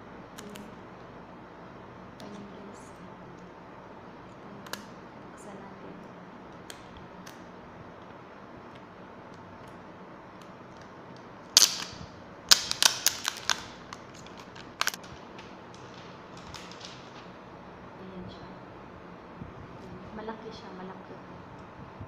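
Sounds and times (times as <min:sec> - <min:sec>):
plastic packaging clicks and crackles: 0:11.6 - 0:17.3.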